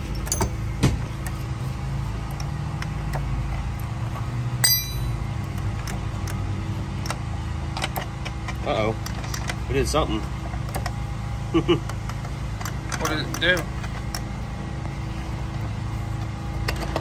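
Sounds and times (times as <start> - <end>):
steady low hum: 0.0 - 7.5
sharp ringing metal clink: 4.6 - 5.3.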